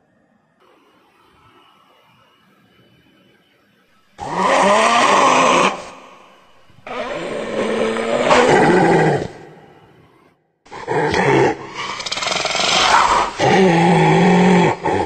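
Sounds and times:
hyena calls: 4.2 - 15.0.

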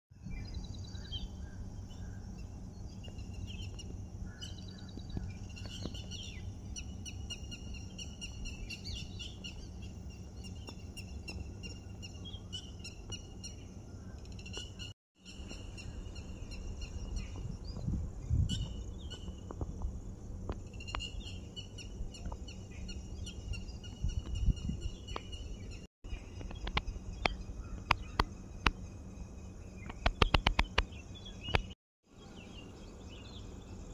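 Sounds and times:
low background rumble: 0.2 - 33.9
birds chirping and calling: 0.3 - 19.6, 20.5 - 33.8
sharp clicks: 26.4 - 28.8, 29.8 - 30.9.

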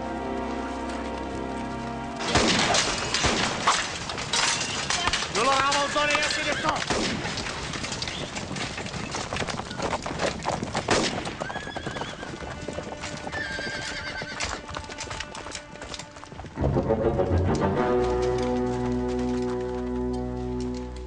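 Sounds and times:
music: 0.0 - 2.7, 12.5 - 21.0
hoofbeats clattering: 0.0 - 21.0
horses neighing: 4.4 - 6.9, 8.0 - 16.6.

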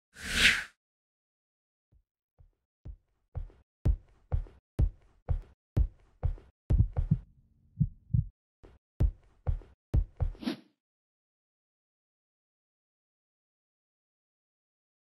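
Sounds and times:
heartbeat thumps: 2.9 - 8.3, 9.0 - 10.4.

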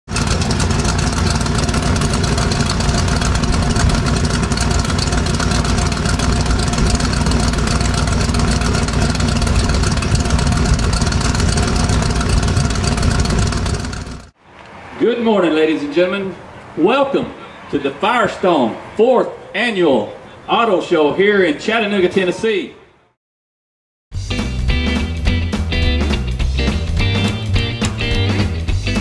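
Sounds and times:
loud engine idling: 0.1 - 14.4.

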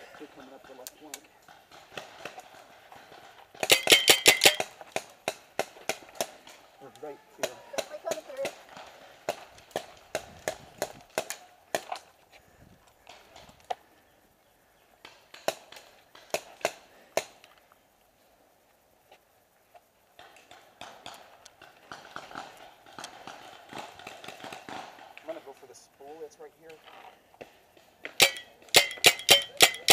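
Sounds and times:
rustle with small ticks: 0.0 - 29.9
paintball markers firing: 0.1 - 6.6, 7.4 - 12.1, 15.1 - 17.5, 20.2 - 25.2, 27.4 - 29.9.

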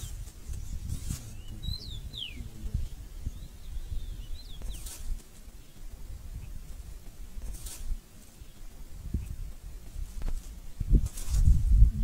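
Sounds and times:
brief rustles: 0.0 - 1.6, 4.6 - 5.5, 7.4 - 8.4, 10.1 - 11.7
small birds chirping: 0.0 - 12.0.

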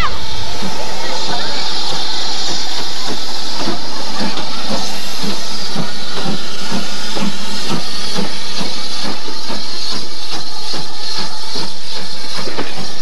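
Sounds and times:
steam locomotive hissing and chuffing: 0.0 - 13.0.

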